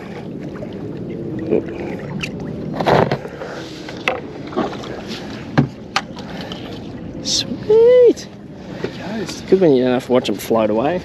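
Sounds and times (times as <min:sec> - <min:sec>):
water lapping against boat: 0:00.0 - 0:11.0
water splash: 0:00.3 - 0:07.4.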